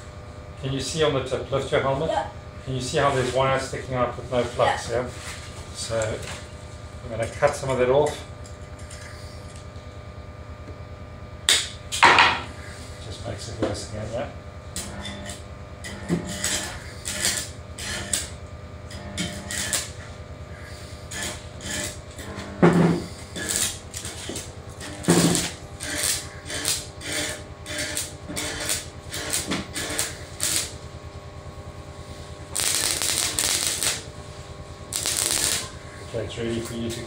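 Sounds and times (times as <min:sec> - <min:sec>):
low buzz: 0:00.0 - 0:37.0
welding arc crackling and sizzling: 0:00.8 - 0:10.1, 0:11.4 - 0:37.0
welding rod scratching steel: 0:14.8 - 0:30.8, 0:32.0 - 0:34.2, 0:34.9 - 0:37.0.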